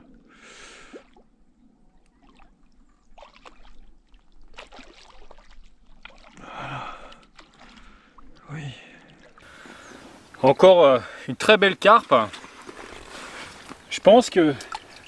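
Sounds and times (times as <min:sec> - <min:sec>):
fish splashing in water: 0:02.2 - 0:06.6, 0:12.3 - 0:13.9.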